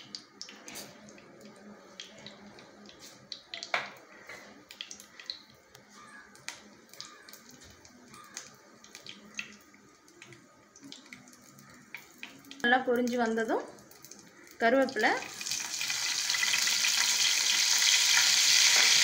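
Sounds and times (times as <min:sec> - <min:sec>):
faint oil sizzle: 0:00.0 - 0:19.0
seeds popping in hot oil: 0:00.0 - 0:19.0.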